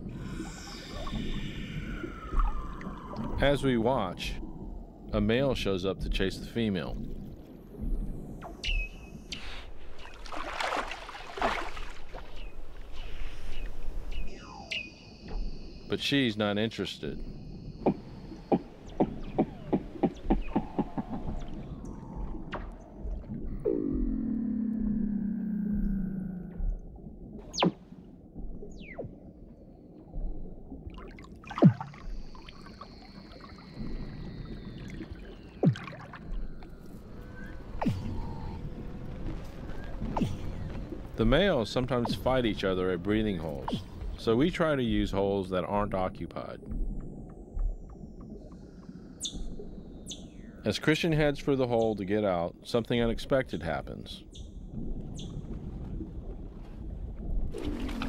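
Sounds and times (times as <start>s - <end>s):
water rushing and splashing: 0.0s - 14.7s, 30.1s - 46.4s, 54.7s - 58.0s
seal whistling calls underwater: 0.2s - 3.7s, 8.4s - 9.7s, 12.3s - 15.9s, 27.4s - 27.8s.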